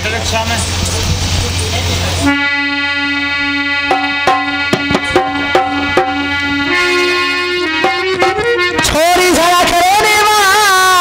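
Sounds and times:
harmonium held note: 0:02.1 - 0:10.6
hand drum rhythm: 0:03.8 - 0:09.1.

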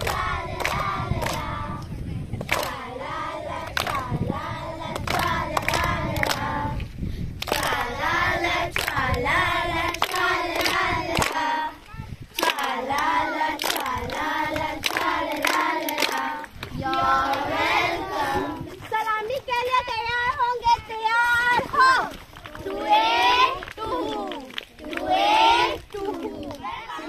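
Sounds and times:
hands clapping in time: 0:00.0 - 0:02.8, 0:03.6 - 0:04.0, 0:09.9 - 0:11.4, 0:12.3 - 0:17.1
girls singing in unison: 0:00.0 - 0:06.9, 0:07.5 - 0:18.7, 0:24.9 - 0:26.1.

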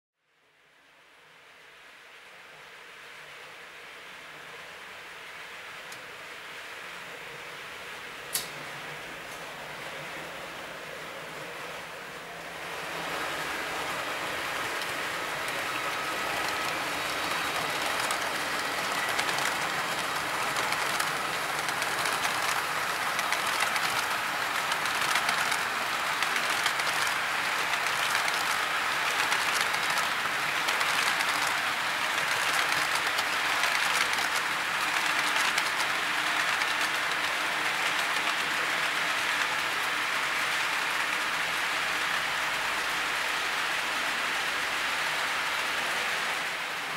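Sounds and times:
metal wheels clicking on track: 0:14.6 - 0:38.4.

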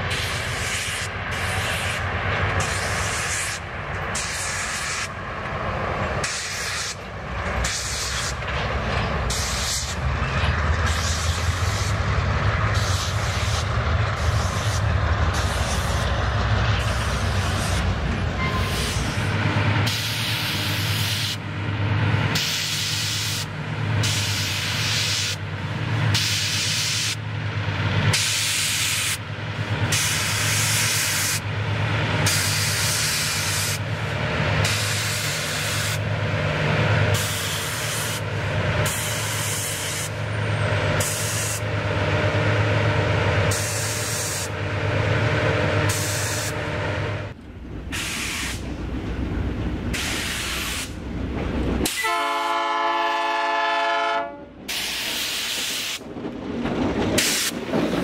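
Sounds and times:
diesel locomotive engines droning: 0:00.0 - 0:58.0
loud hiss: 0:19.8 - 0:21.4, 0:22.4 - 0:25.5, 0:47.9 - 0:48.7, 0:49.9 - 0:51.0.

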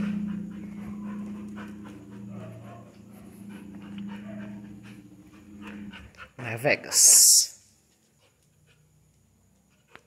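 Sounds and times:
low hum: 0:00.0 - 0:06.4
dog panting: 0:00.0 - 0:10.0.

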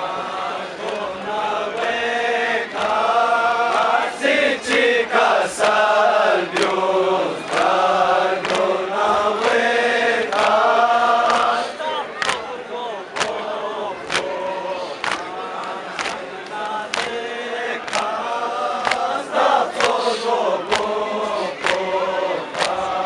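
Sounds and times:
men chanting in unison: 0:00.0 - 0:23.0
hands slapping chests: 0:00.8 - 0:01.1, 0:06.5 - 0:06.8, 0:08.4 - 0:09.6, 0:10.3 - 0:14.4, 0:15.0 - 0:17.2, 0:17.8 - 0:23.0.

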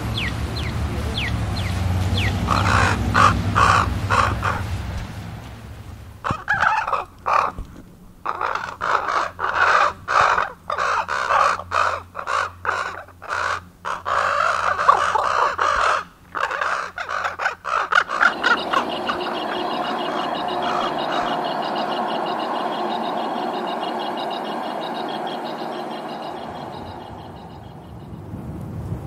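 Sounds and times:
ravens croaking: 0:00.0 - 0:28.1
steady engine hum: 0:00.0 - 0:29.0.

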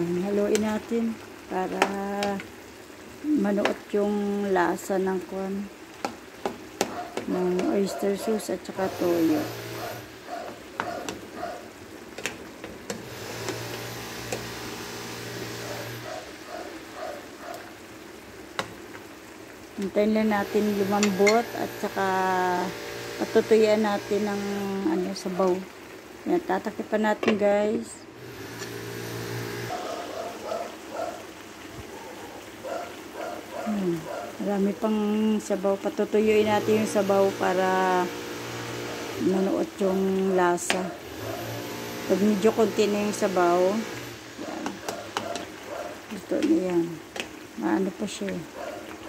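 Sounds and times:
sauce simmering hiss: 0:00.0 - 0:49.0
spoon knocking and scraping pan: 0:06.0 - 0:07.9, 0:12.1 - 0:14.5, 0:20.8 - 0:21.5, 0:40.6 - 0:40.8, 0:44.6 - 0:45.7.

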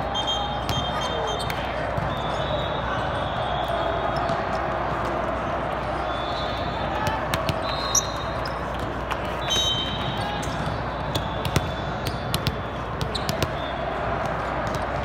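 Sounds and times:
murmur of many voices: 0:00.0 - 0:15.0
volleyball hits and bounces: 0:00.6 - 0:02.3, 0:07.0 - 0:15.0.

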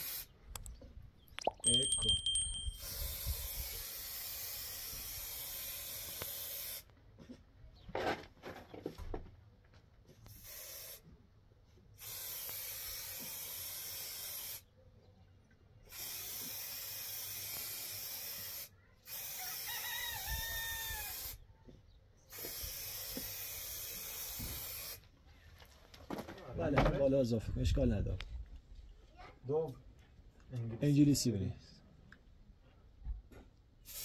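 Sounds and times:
spray paint can hissing: 0:00.0 - 0:00.3, 0:02.7 - 0:06.9, 0:10.2 - 0:11.1, 0:12.0 - 0:14.7, 0:15.9 - 0:19.7, 0:20.4 - 0:21.4, 0:22.3 - 0:25.0
rooster crowing: 0:19.4 - 0:21.1.

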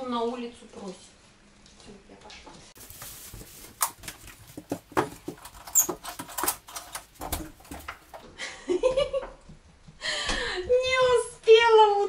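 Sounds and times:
door lock and handle rattling: 0:04.9 - 0:08.2.

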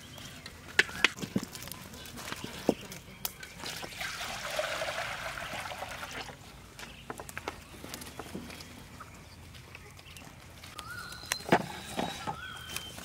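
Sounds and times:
water pouring into hot wok: 0:03.8 - 0:06.4.

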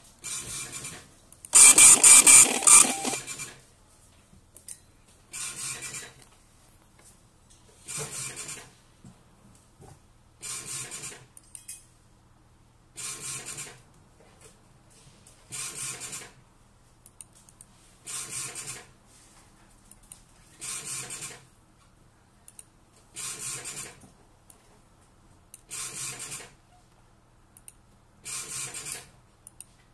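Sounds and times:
dot-matrix printer buzzing: 0:01.6 - 0:03.2.

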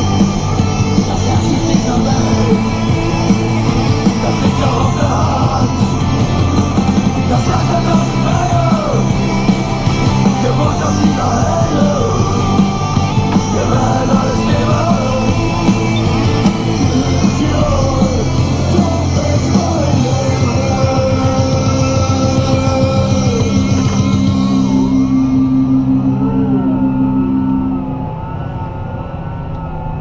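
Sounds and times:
rock music with singing: 0:00.0 - 0:30.0
tractor engine drone: 0:00.0 - 0:30.0.

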